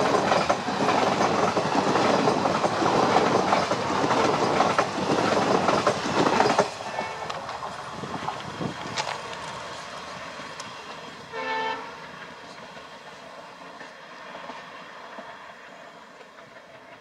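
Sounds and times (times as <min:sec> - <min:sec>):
diesel train rolling past: 0:00.0 - 0:17.0
train horn blast: 0:06.9 - 0:07.4, 0:11.3 - 0:12.2.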